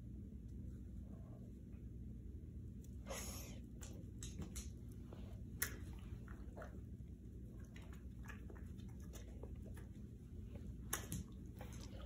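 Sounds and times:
low room hum: 0.0 - 12.0
dog chewing and licking lips: 3.8 - 12.0.

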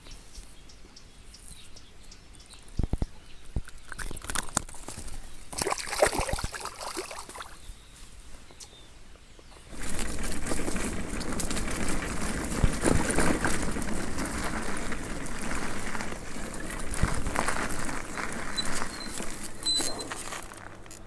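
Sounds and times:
bicycle tyres on dirt path: 0.0 - 21.0
bicycle frame rattling: 9.7 - 21.0.

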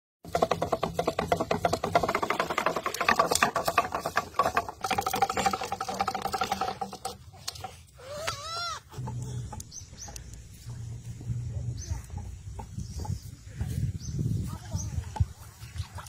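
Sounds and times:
spinning spool clicking rattle: 0.2 - 7.9.

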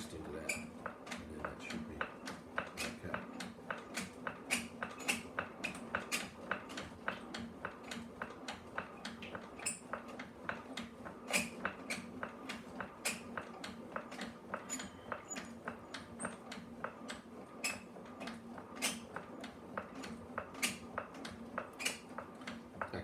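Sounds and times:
potter's wheel clicking: 0.0 - 23.0.

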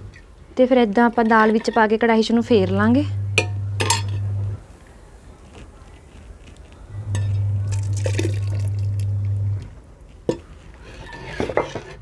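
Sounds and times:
low steady hum: 0.0 - 11.2
liquid pouring and splashing: 7.7 - 9.0.

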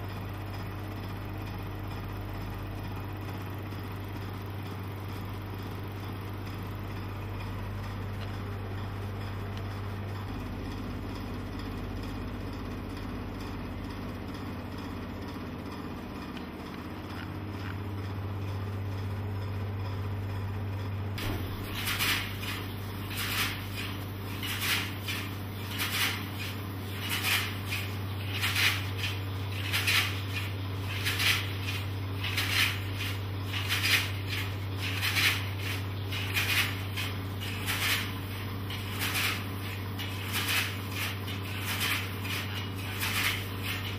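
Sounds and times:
film scanner humming: 0.0 - 43.9.

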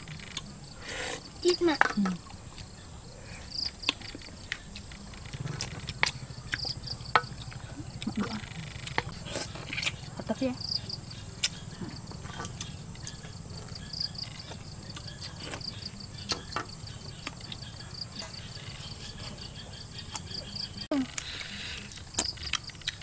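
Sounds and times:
insects calling: 0.0 - 23.0
low steady rumble: 4.3 - 13.9.

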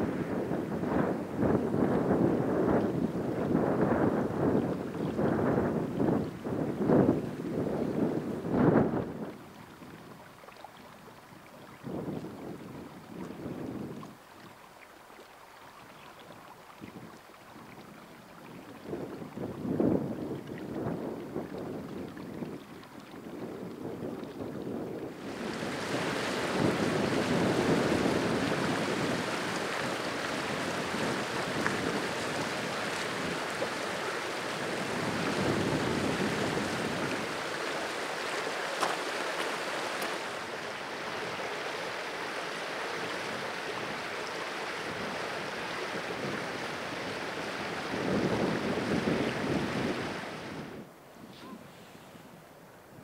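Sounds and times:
wind gusting: 0.0 - 9.2, 24.7 - 51.6.

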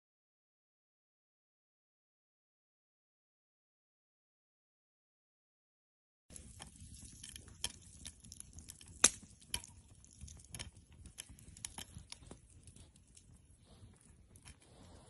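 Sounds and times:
campfire crackling and popping: 6.3 - 15.0.

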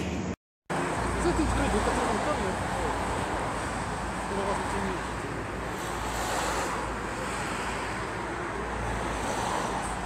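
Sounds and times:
car road and wind noise: 0.0 - 10.0.

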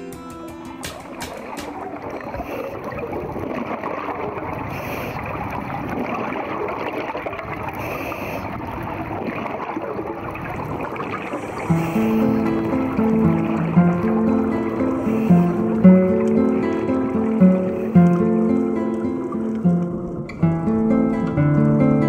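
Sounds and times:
underwater bubbling: 0.0 - 22.0
regulator breathing hiss: 4.7 - 5.3, 7.8 - 8.6, 11.2 - 12.8, 14.8 - 15.8.

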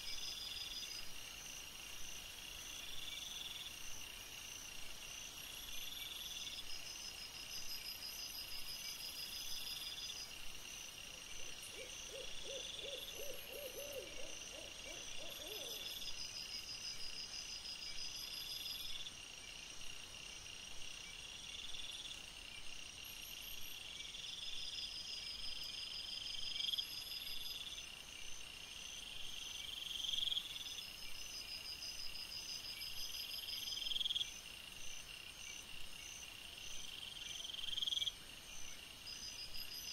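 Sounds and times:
night insects chirping: 0.0 - 39.9.

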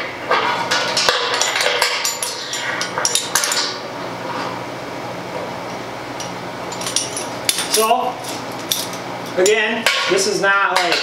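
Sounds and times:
metal fittings clinking: 6.7 - 9.6.

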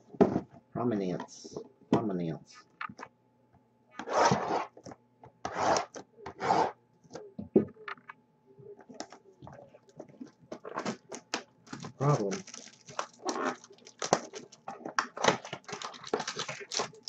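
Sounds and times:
cardboard boxes scratching: 4.0 - 4.8, 5.4 - 6.8.

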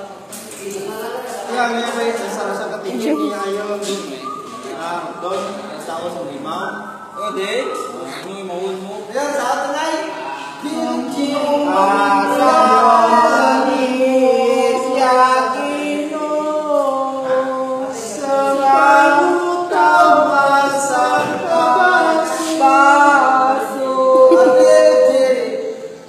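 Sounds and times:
voices singing without instruments: 9.8 - 26.0.

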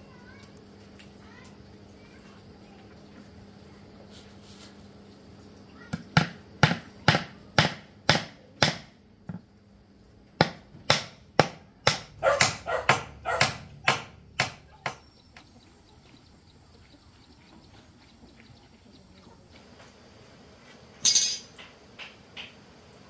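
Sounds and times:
dog barking: 12.2 - 14.0.

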